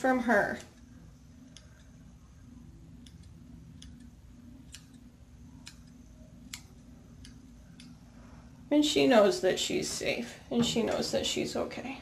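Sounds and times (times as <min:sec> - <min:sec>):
scissors snipping hair: 0:00.0 - 0:02.0, 0:02.9 - 0:08.0.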